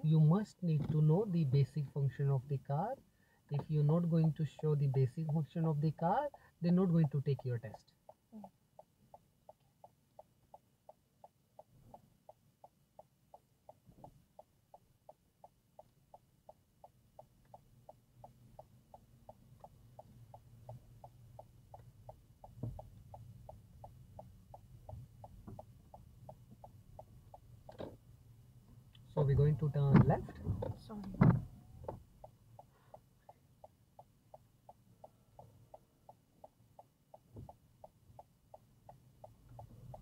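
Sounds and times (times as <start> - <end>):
engine and road hum: 0.0 - 9.4, 17.2 - 33.2
turn signal clicking: 0.0 - 40.0.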